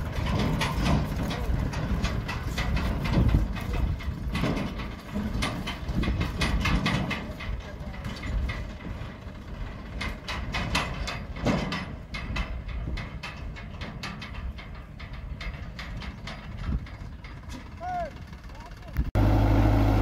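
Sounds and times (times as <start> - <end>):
trolley rattling and clanking: 0.0 - 19.1
tractor diesel engine running: 0.0 - 20.0.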